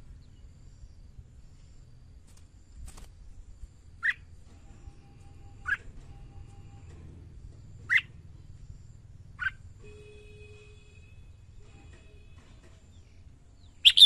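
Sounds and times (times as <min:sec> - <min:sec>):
bird call notes: 0:13.7 - 0:14.0.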